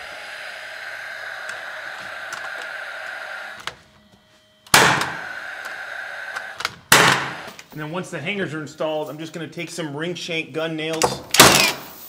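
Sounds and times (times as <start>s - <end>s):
steady hum: 0.0s - 10.2s
nail gun bang: 4.7s - 5.7s, 6.3s - 7.6s, 11.0s - 12.0s.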